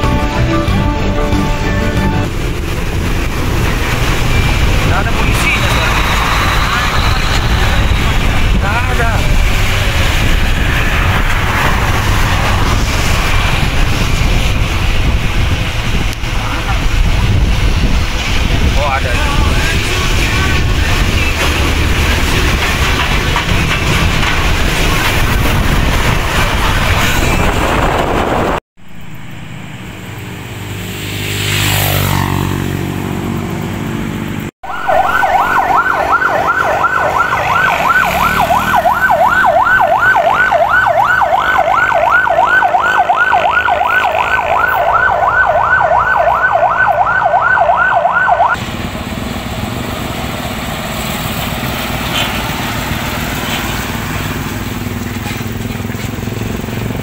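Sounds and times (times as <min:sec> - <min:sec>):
engine revving: 0:00.0 - 0:45.7
truck engines humming: 0:00.0 - 0:57.0
trucks passing close: 0:00.0 - 0:57.0
warbling electronic siren: 0:04.0 - 0:09.3, 0:34.6 - 0:48.6.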